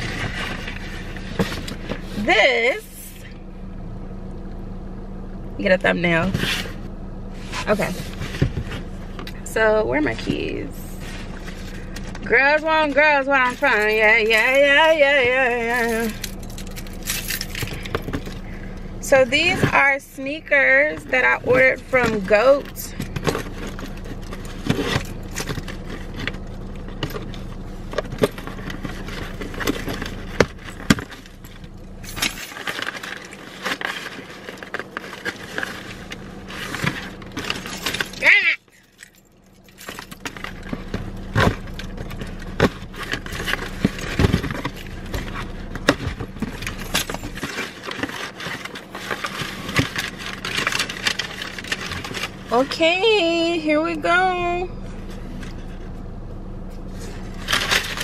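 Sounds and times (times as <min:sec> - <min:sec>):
keys jangling: 0:13.4 - 0:18.5.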